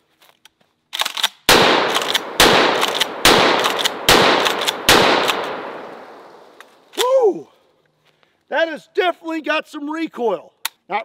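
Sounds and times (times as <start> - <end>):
shotgun shots echoing: 1.5 - 6.6.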